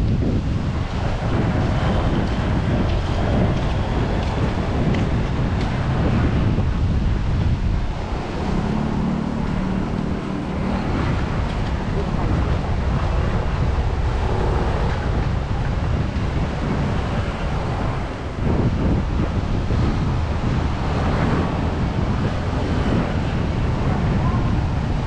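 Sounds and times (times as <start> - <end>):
surf on a beach: 0.0 - 25.0
wind buffeting microphone: 0.0 - 25.0
faint voices: 7.9 - 15.1.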